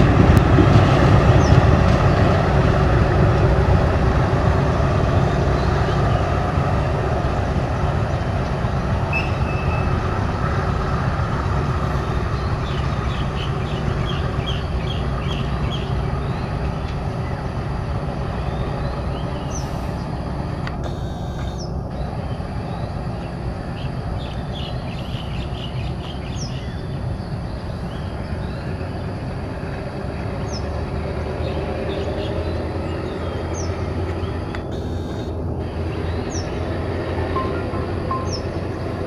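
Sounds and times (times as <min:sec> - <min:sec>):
train rumbling along track: 0:00.0 - 0:39.0
bird chirping: 0:20.9 - 0:27.0, 0:37.4 - 0:39.0.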